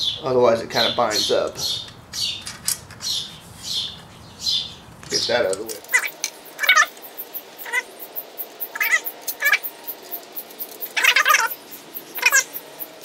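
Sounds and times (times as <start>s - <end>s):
animal short pitched calls: 5.9s - 6.9s, 8.7s - 9.7s, 12.2s - 12.5s.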